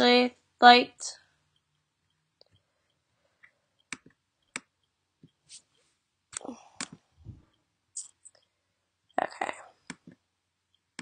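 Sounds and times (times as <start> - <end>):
fingers clicking on laptop: 3.4 - 5.6, 6.3 - 7.0, 9.8 - 10.2.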